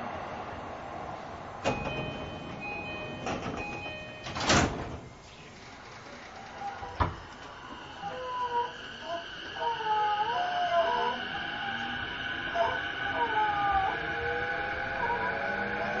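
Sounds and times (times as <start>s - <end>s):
sliding doors shutting with a thud: 1.6s - 7.8s.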